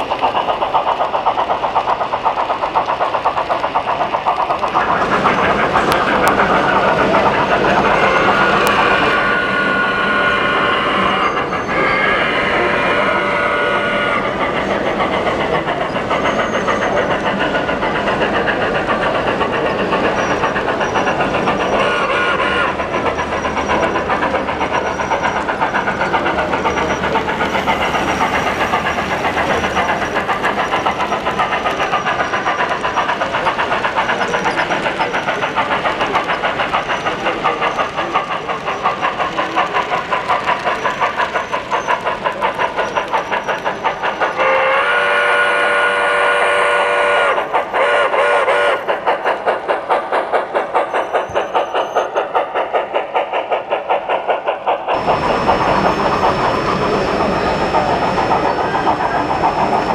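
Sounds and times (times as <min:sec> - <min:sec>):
model train wheels clattering: 0:00.0 - 0:09.4, 0:10.6 - 0:59.9
model steam locomotive chuffing: 0:00.0 - 0:59.9.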